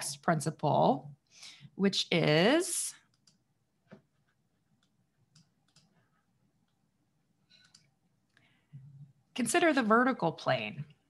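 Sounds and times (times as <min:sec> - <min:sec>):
soft clicks: 0:03.0 - 0:03.4, 0:04.8 - 0:06.0.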